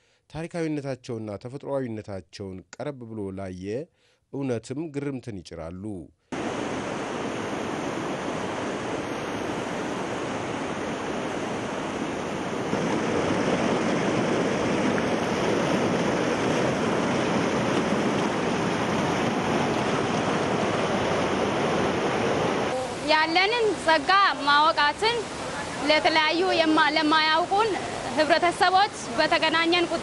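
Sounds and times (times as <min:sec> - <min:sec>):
river rapids rushing over rocks: 0:06.4 - 0:30.0.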